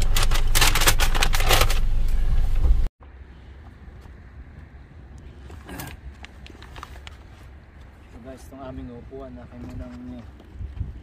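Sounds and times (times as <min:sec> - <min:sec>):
paper bag rustling: 0:00.0 - 0:02.1.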